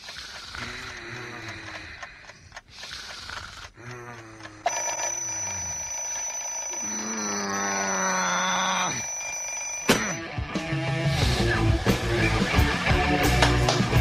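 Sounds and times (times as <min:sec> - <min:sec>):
alarm clock buzzing: 0:00.0 - 0:10.3
alarm clock switch click: 0:09.0 - 0:10.2.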